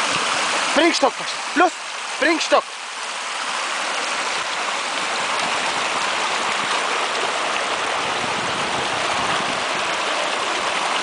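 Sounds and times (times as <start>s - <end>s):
stream rushing over stones: 0.0s - 11.0s.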